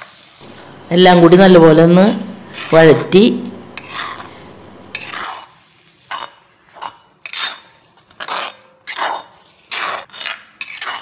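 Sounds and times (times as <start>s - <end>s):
spatula scraping in a pot: 3.6s - 11.0s.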